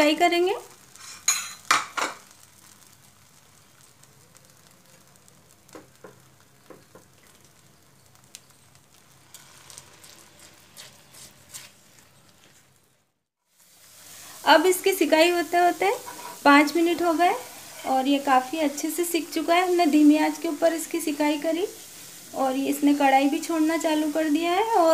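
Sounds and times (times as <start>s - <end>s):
paste sizzling in a pan: 0.0s - 24.9s
spatula scraping a pan: 0.9s - 1.6s, 9.3s - 11.8s, 16.0s - 16.5s, 17.4s - 18.1s.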